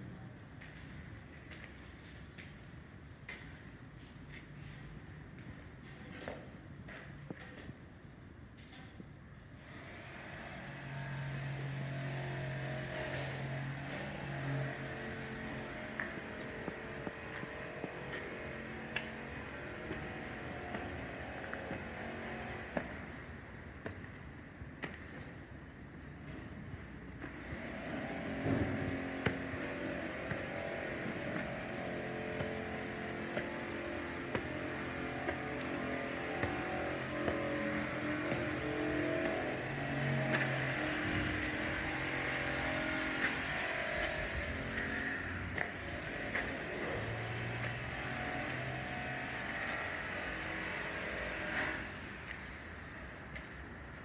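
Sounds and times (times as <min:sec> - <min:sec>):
engine humming: 0:09.6 - 0:54.0.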